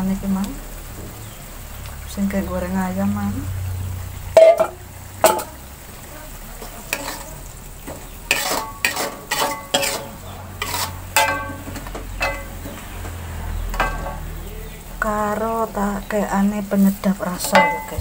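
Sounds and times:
chicken sizzling: 0.0s - 18.0s
metal spatula scraping wok: 4.4s - 5.6s, 6.6s - 14.4s, 16.7s - 18.0s.

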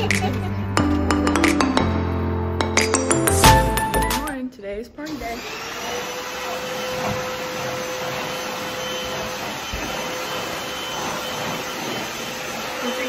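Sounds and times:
appliance motor whirring: 5.1s - 13.0s.

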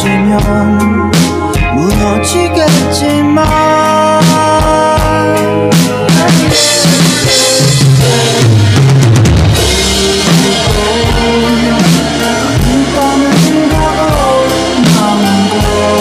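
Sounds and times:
indie rock instrumental: 0.0s - 16.0s
electronic drum kit hits: 3.5s - 16.0s.

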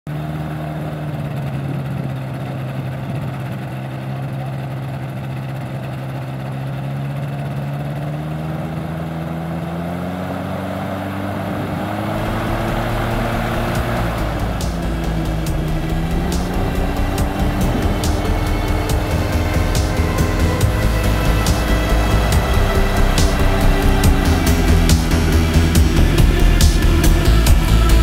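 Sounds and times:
ultralight engine and propeller: 0.1s - 28.0s.

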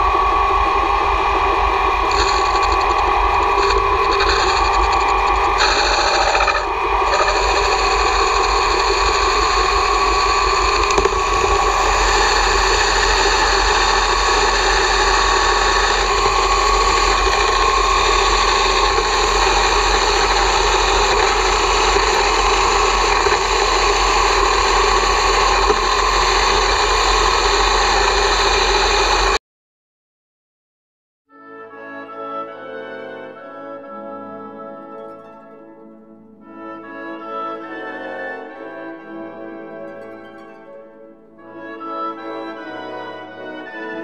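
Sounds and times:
lathe whining: 0.0s - 29.4s
low hum: 0.0s - 29.4s.

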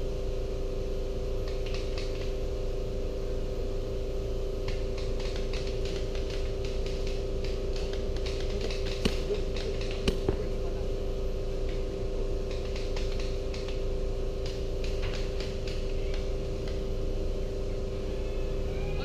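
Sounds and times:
steady two-tone hum: 0.0s - 19.0s
sharp clicks: 1.4s - 2.3s, 4.6s - 10.4s, 12.4s - 13.8s, 14.4s - 16.9s.

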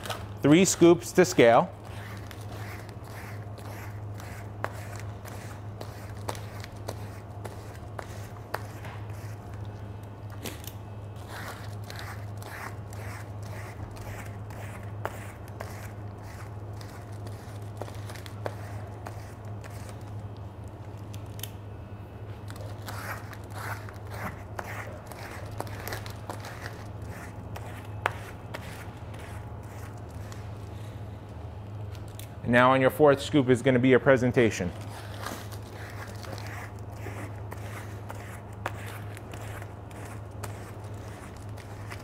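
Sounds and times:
scoop scraping frozen ice: 34.8s - 42.0s.

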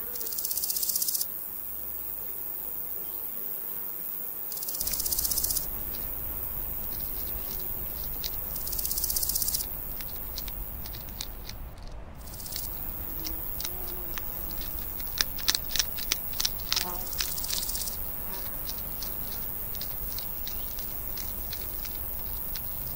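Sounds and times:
pulsed insect chirring: 0.0s - 22.9s
hedgehogs chewing clicks: 4.8s - 22.9s.

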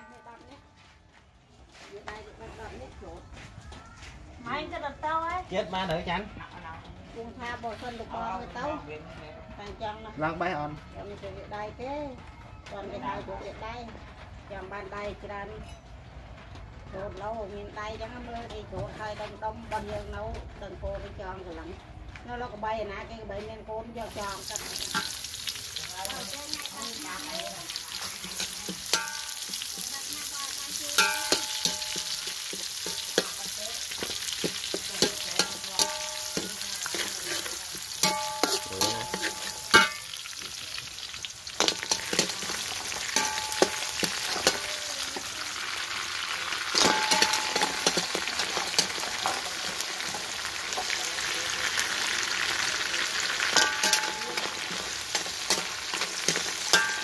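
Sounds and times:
garlic sizzling in hot oil: 24.0s - 57.0s
metal spatula scraping a wok: 24.0s - 57.0s.

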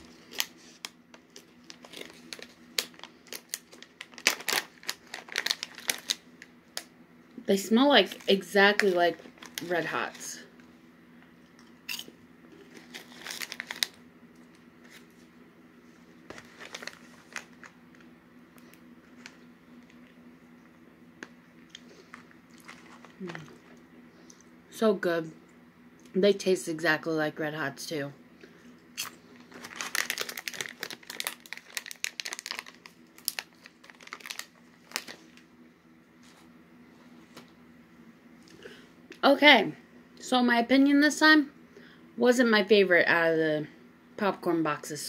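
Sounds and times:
plastic snack bag crinkling: 0.0s - 6.9s, 8.0s - 10.4s, 11.9s - 15.1s, 16.3s - 20.1s, 21.2s - 23.8s, 29.0s - 35.5s.

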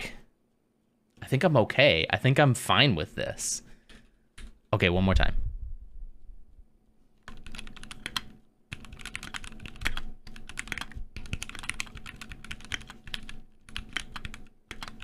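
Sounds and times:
fast typing on mechanical keyboard: 7.2s - 15.0s.

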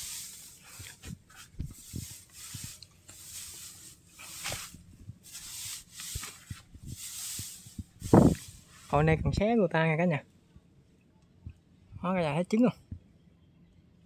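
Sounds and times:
straw rustling: 0.0s - 9.1s.

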